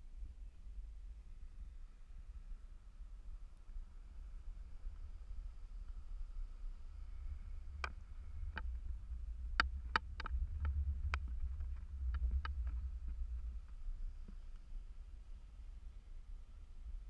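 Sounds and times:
wind buffeting microphone: 0:06.9 - 0:14.4.

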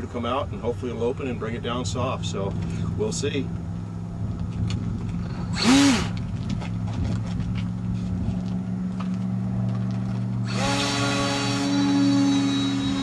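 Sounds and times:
steady low hum: 0:00.0 - 0:13.0
model plane motor revving: 0:05.3 - 0:06.2, 0:10.4 - 0:13.0.

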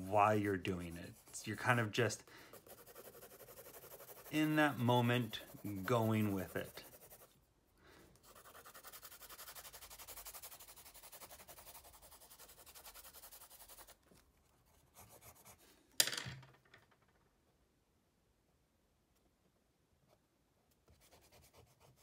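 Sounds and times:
pen scribbling on paper: 0:00.5 - 0:07.4, 0:08.2 - 0:14.0.

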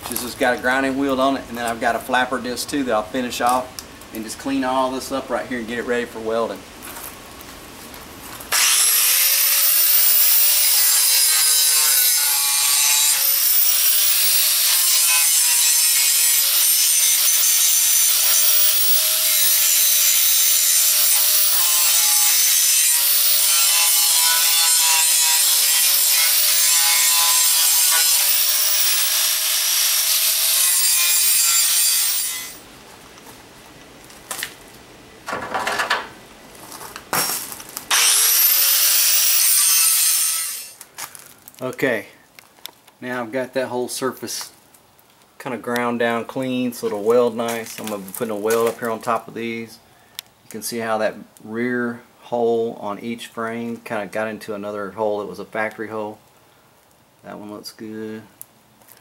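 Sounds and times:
angle grinder grinding metal: 0:08.5 - 0:32.6, 0:37.2 - 0:40.8.

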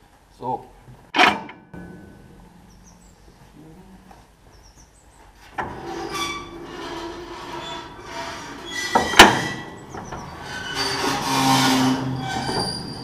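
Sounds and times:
loud sharp metal clank: 0:01.2 - 0:03.3
metal parts squealing and creaking: 0:05.4 - 0:13.0.

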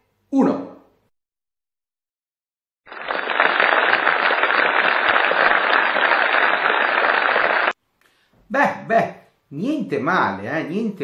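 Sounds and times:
applause: 0:02.9 - 0:07.8.

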